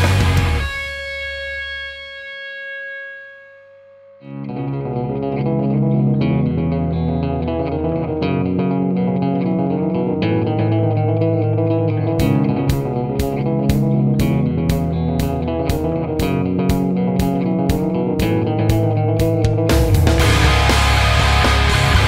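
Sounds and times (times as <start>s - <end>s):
steady drum beat: 0.0s - 0.7s, 12.2s - 22.0s
guitar background music: 0.0s - 22.0s.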